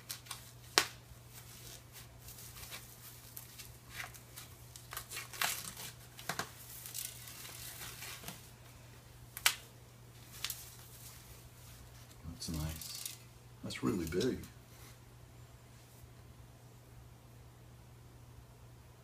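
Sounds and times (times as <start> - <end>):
paper wrapping tearing and crinkling: 0.0 - 8.5, 10.2 - 11.4, 12.0 - 13.2.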